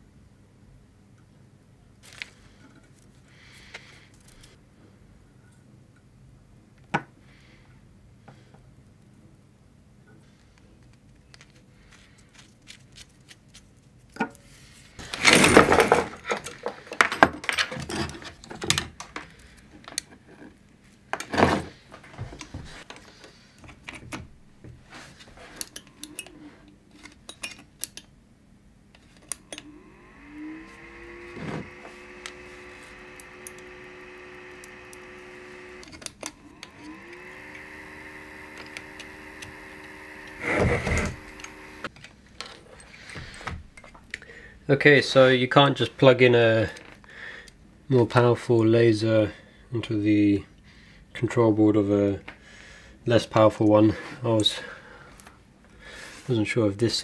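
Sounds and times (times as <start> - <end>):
small parts clicking and clattering: 2.0 - 4.6, 15.0 - 20.5, 25.5 - 28.1, 29.0 - 44.2
small cooling fan whirring: 29.0 - 44.2.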